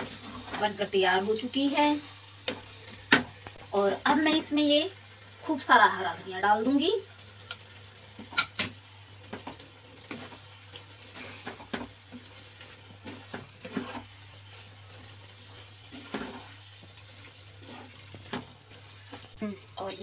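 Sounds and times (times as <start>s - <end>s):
wooden spatula scraping a pan: 0.0s - 3.5s, 9.2s - 19.4s
faint sizzle: 0.0s - 20.0s.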